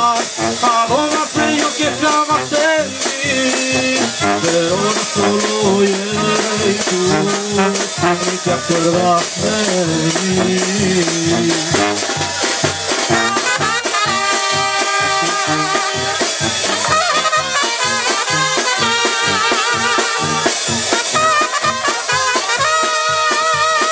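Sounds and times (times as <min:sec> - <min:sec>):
brass band playing: 0:00.0 - 0:23.9
steady drum beat: 0:00.0 - 0:23.9.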